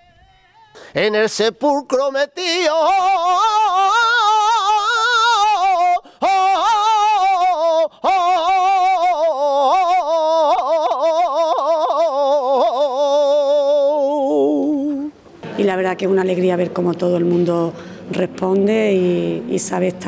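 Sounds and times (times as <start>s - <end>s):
man singing unaccompanied: 0.0s - 15.1s.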